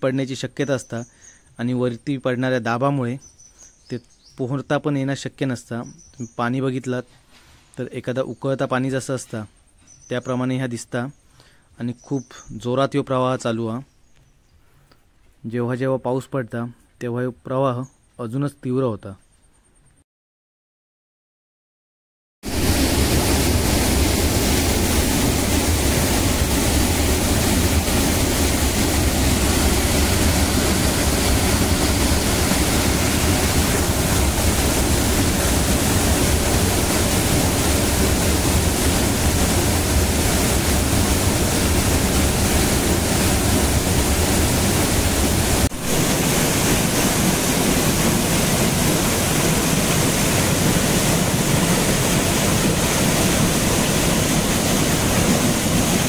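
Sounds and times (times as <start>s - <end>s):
waterfall pouring over rocks: 22.5s - 56.0s.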